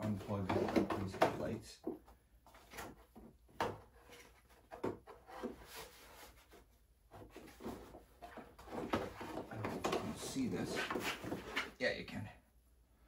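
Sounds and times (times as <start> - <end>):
plastic panel knocks and rubs: 0.0 - 1.5.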